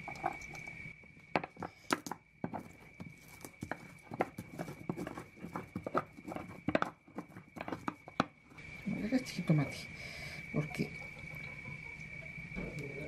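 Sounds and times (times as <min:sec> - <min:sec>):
faint high whine: 0:00.0 - 0:13.0
stone pestle grinding in mortar: 0:01.5 - 0:08.4.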